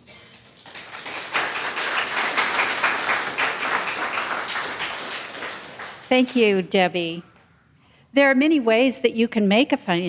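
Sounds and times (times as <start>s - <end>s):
congregation applauding: 0.2s - 6.8s.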